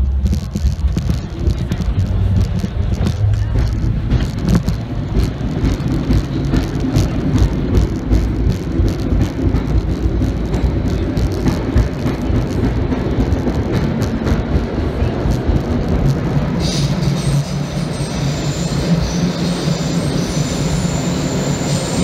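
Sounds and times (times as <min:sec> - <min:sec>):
subway train rumbling in tunnel: 0:00.0 - 0:22.0
wheels clicking and clacking: 0:00.0 - 0:22.0.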